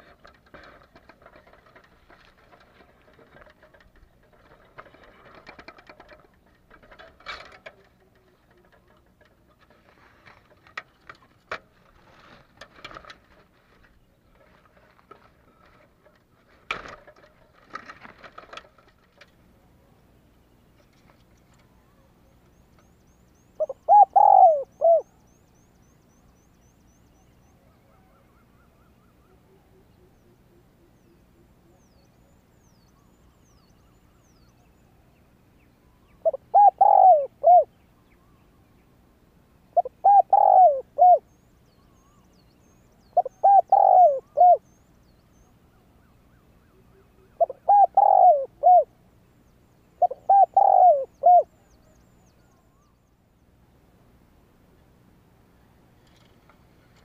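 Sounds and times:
dove cooing: 23.6s - 25.2s, 36.1s - 37.7s, 39.8s - 41.3s, 43.1s - 44.7s, 46.6s - 49.0s, 50.0s - 51.8s.

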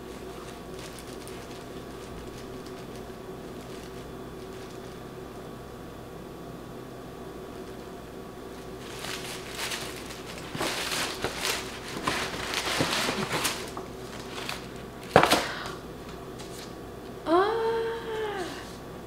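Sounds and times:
sharp paper crackle: 0.0s - 5.1s, 8.5s - 15.5s
tissue paper rustling: 0.0s - 5.1s, 8.5s - 15.4s.

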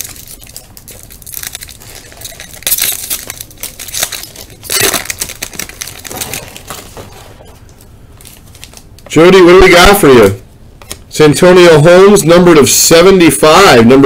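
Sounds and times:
foil wrapper crinkling and tearing: 0.0s - 9.1s.

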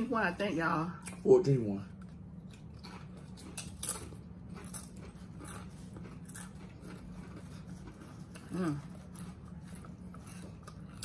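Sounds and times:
low steady hum: 0.0s - 11.0s
tortilla chips crunching: 2.5s - 11.0s.

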